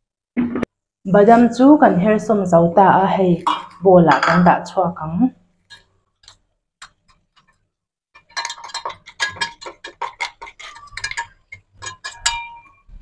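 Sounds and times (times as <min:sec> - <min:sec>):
metal utensil clinking on pot: 0:03.4 - 0:04.6, 0:08.2 - 0:13.0.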